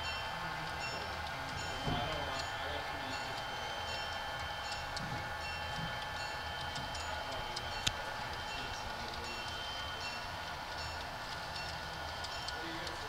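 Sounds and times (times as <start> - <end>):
light clicks of train wheels: 0.0 - 13.0
model train rolling hum: 0.0 - 13.0.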